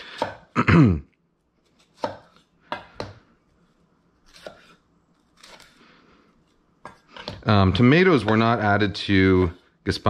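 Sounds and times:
knife slicing tomatoes on board: 0.0s - 0.5s, 1.6s - 3.3s, 4.2s - 5.8s.

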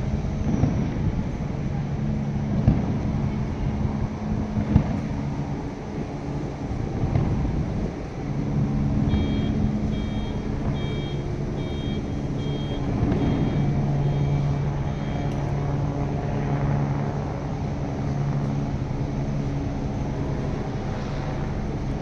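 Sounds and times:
bus engine humming: 0.0s - 22.0s
electronic warning beeps: 9.0s - 15.5s.

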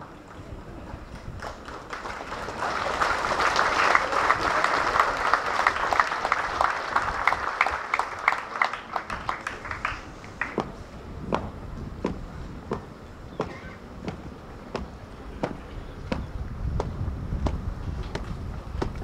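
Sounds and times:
crowd applauding: 1.0s - 10.8s.

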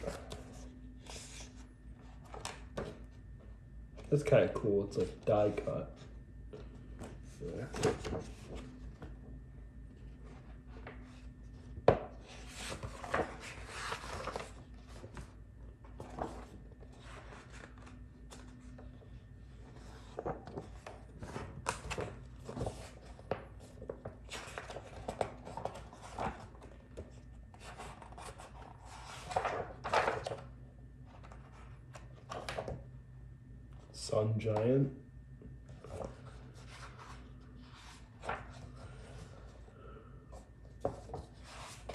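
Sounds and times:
paper pages rustling and flapping: 0.0s - 3.0s, 10.0s - 30.5s, 31.1s - 32.8s, 35.7s - 39.7s, 40.7s - 41.9s.

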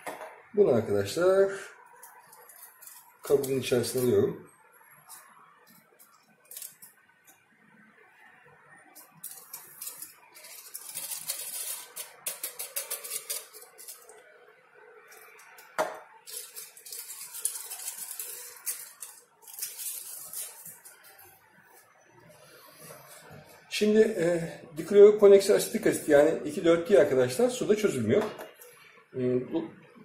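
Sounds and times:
glass scraping: 9.0s - 14.2s.

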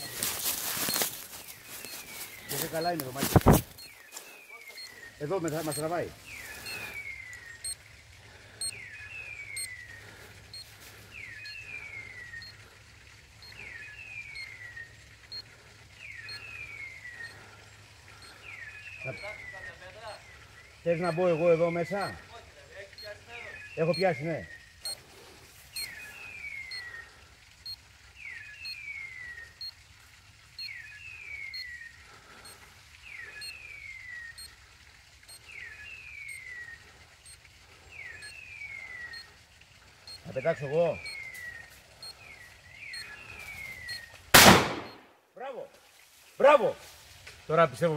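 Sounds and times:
beeper collar electronic call: 1.8s - 3.9s, 4.5s - 7.0s, 19.0s - 20.3s, 20.9s - 25.0s, 40.1s - 41.3s
collar beeper chirp and whistle: 4.6s - 7.8s, 19.0s - 20.2s.

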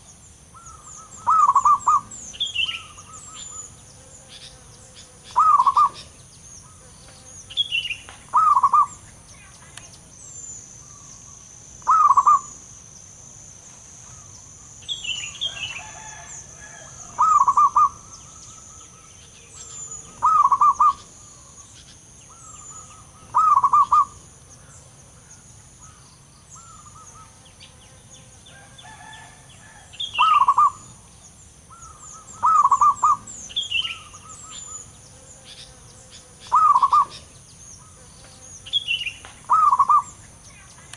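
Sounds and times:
small birds chirping: 0.0s - 40.9s
dove cooing: 0.6s - 3.7s, 5.3s - 6.1s, 8.3s - 9.0s, 11.8s - 12.6s, 15.5s - 21.6s, 22.3s - 24.2s, 28.9s - 31.0s, 31.7s - 34.8s, 36.4s - 37.3s, 39.5s - 40.2s.

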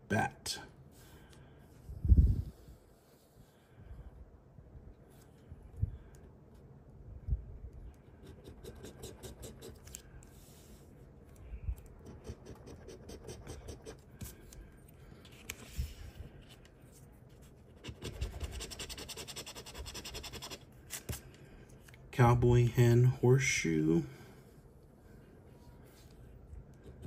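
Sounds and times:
coin scratching lottery ticket: 8.3s - 9.8s, 12.0s - 14.0s, 17.8s - 20.6s.

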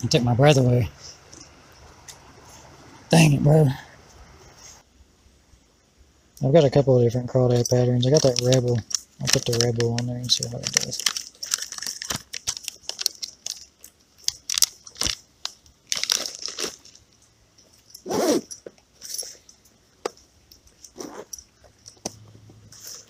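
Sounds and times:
scrape: 4.4s - 4.9s
rustling in fabric backpack: 17.9s - 19.3s, 20.8s - 21.4s.

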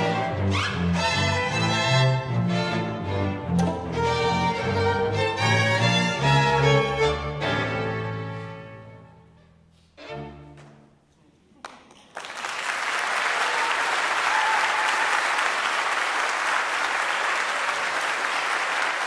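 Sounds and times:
audience applause: 11.6s - 19.0s.

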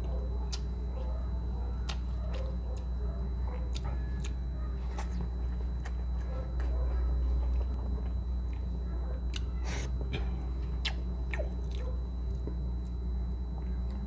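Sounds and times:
man chewing with wet smacks: 0.0s - 14.0s
steady low hum: 0.0s - 14.0s.

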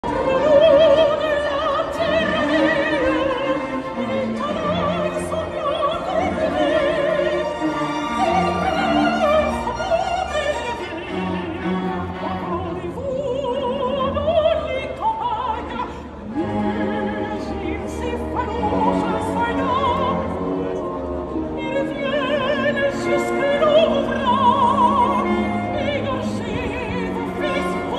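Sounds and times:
operatic singer with vibrato: 0.0s - 27.9s
symphony orchestra with bowed strings: 0.0s - 27.9s.

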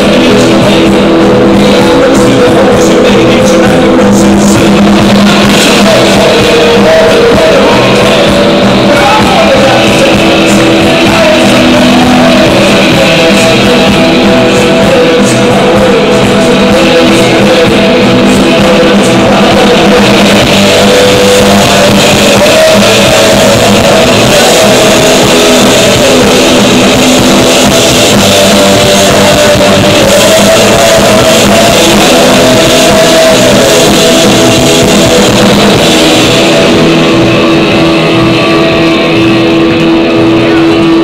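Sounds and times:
drums: 0.0s - 41.0s
electric guitar: 0.0s - 41.0s
people singing and shouting: 0.0s - 41.0s.

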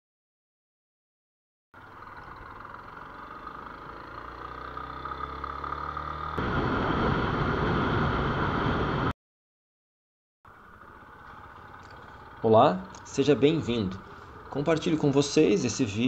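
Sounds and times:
motorcycle engine running: 1.8s - 6.6s, 10.5s - 16.0s
rushing road noise: 1.8s - 9.1s, 10.5s - 16.0s.

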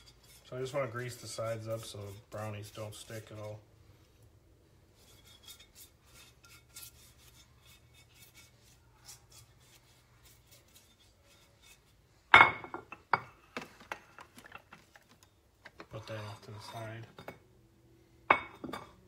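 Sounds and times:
brush swishing in baking dish: 0.0s - 4.1s, 4.8s - 12.0s
dish knocking down on surface: 12.4s - 13.3s.

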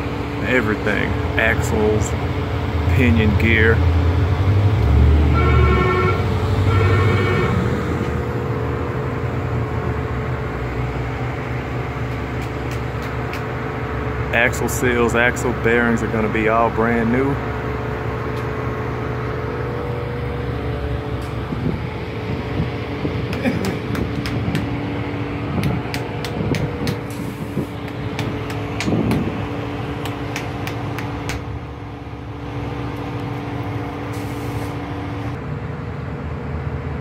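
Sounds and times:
steady mechanical hum: 0.0s - 37.0s
sharp clicks and taps: 12.1s - 13.5s, 23.3s - 24.7s, 25.6s - 27.2s, 27.8s - 29.4s, 30.0s - 31.5s.

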